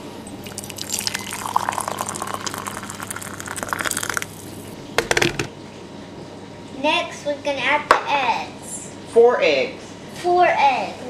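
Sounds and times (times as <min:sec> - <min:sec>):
oil pouring into a glass bowl: 0:00.4 - 0:04.6.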